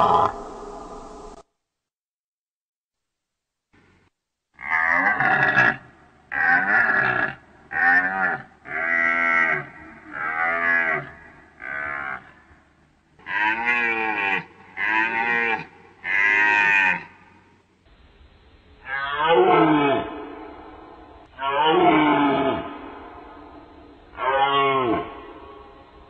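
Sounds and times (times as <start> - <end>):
deer calling in low groans: 4.6 - 12.6, 13.2 - 17.2, 18.8 - 25.8.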